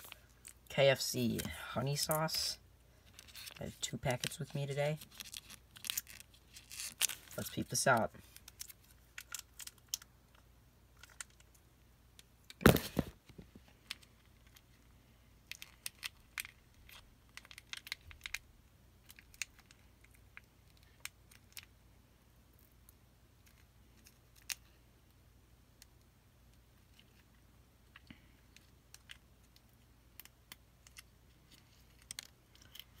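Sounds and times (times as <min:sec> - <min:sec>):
plastic packets clicking and crinkling: 0:01.4 - 0:10.4, 0:11.0 - 0:11.6, 0:15.4 - 0:21.7, 0:28.0 - 0:33.0.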